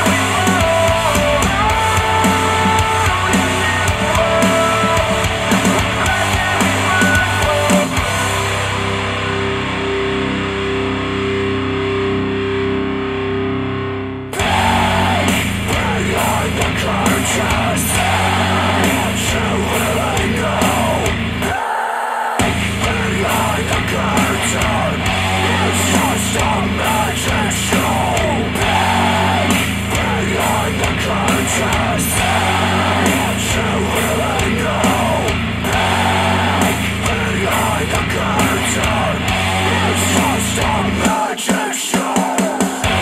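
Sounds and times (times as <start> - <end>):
rock music through speakers: 0.0 - 21.7, 22.3 - 43.0.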